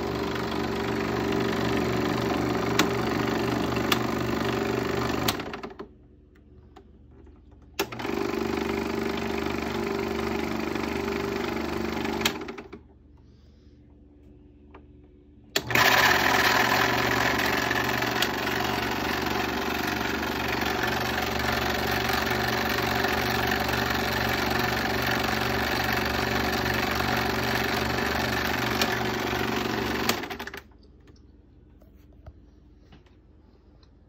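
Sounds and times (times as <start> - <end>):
film projector running: 0.0 - 5.9, 7.8 - 12.9, 15.5 - 30.8.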